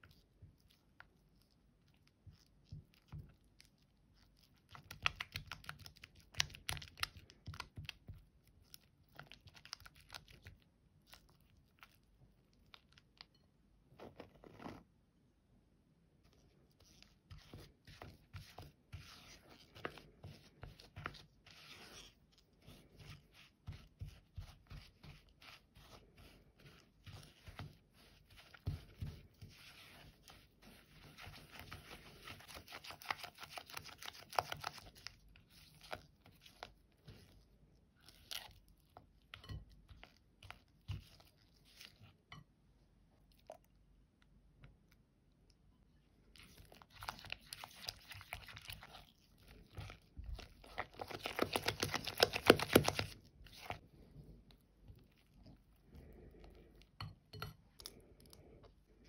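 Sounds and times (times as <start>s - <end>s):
spatula scraping and squishing in bowl: 0.0s - 14.9s, 16.3s - 42.6s, 46.2s - 58.8s.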